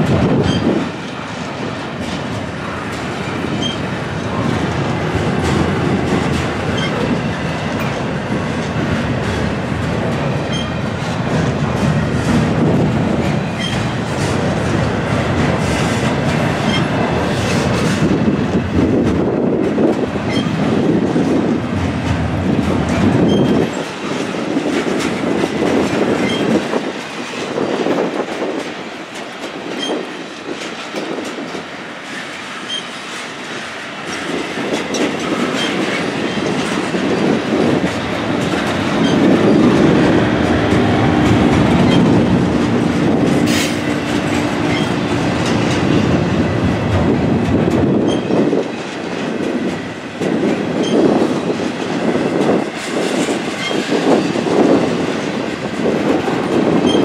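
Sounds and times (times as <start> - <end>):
train wheels rumbling on rails: 0.0 - 57.0
wheel squeal: 0.4 - 0.7, 3.6 - 3.8, 6.7 - 7.0, 10.5 - 10.8, 16.7 - 16.9, 20.3 - 20.6, 23.2 - 23.6, 26.2 - 26.6, 32.7 - 33.0, 39.0 - 39.6, 41.8 - 42.2, 44.7 - 45.0, 48.0 - 48.3, 50.8 - 51.1.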